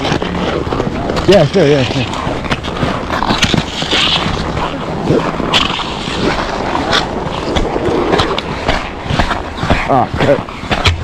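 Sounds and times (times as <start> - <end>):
crunching on packed snow: 0.0 - 11.0
sharp knocks and clatter: 5.5 - 11.0.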